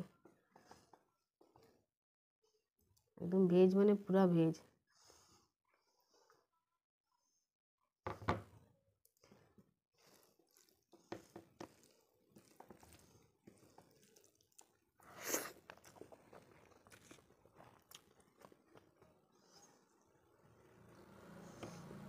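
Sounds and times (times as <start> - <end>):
wet eating noises: 9.3 - 22.0
fingers squishing rice: 10.0 - 20.1.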